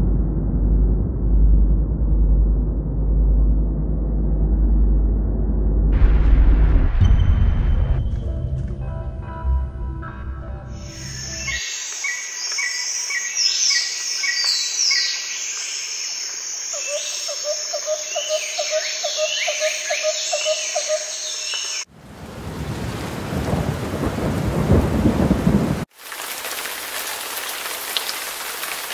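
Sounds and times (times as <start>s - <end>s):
thunder rumble: 0.0s - 11.6s, 22.0s - 25.9s
rain hissing: 10.6s - 16.4s, 22.0s - 28.9s
birds whistling: 10.8s - 21.8s.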